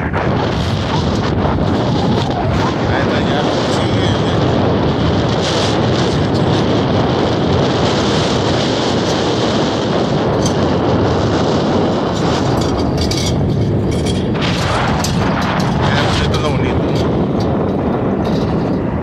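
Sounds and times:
truck road and engine noise: 0.0s - 19.0s
wind buffeting microphone: 0.0s - 19.0s.

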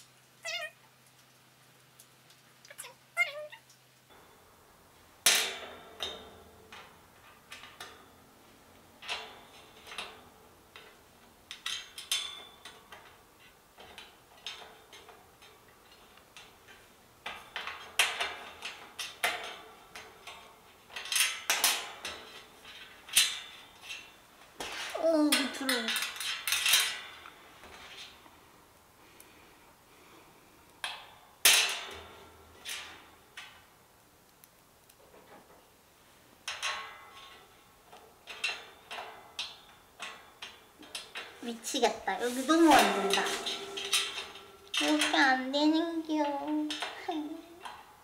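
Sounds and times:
cat meowing: 0.4s - 0.8s, 2.7s - 3.6s.

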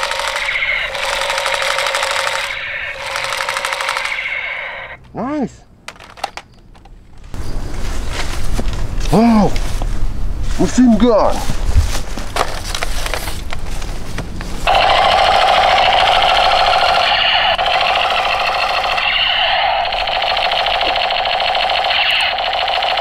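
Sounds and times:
toy machine gun rattle: 0.0s - 5.0s, 14.7s - 23.0s.

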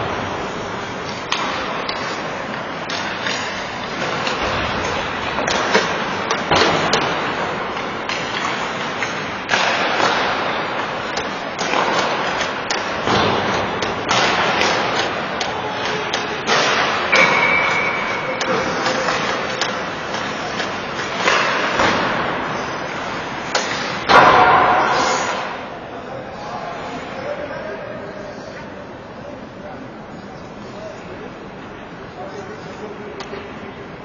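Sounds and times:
hockey sticks and puck clacking: 0.0s - 25.7s.

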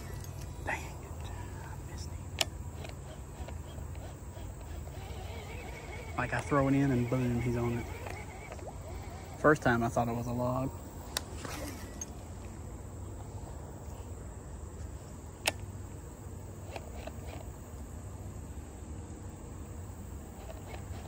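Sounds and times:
insects droning: 0.0s - 21.0s
fishing reel clicks: 2.3s - 9.5s.

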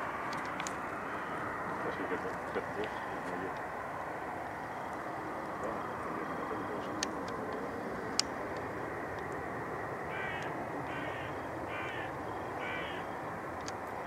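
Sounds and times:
aircraft noise rumble: 0.0s - 14.0s
crow cawing: 1.0s - 1.6s, 10.0s - 13.2s.

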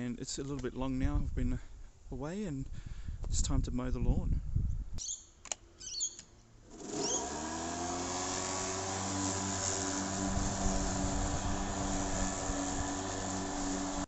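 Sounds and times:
electric lawn mower running: 6.6s - 14.0s.

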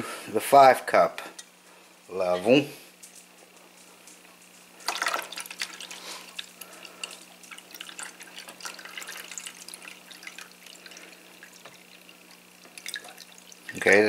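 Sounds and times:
water pouring and splashing: 4.8s - 14.0s.

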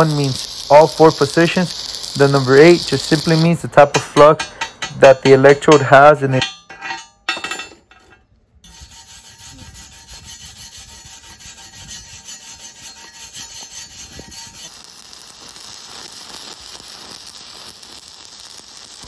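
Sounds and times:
welding arc crackling hiss: 0.0s - 6.4s, 8.7s - 19.0s
wire brush scrubbing metal: 0.0s - 7.1s, 8.6s - 14.8s.

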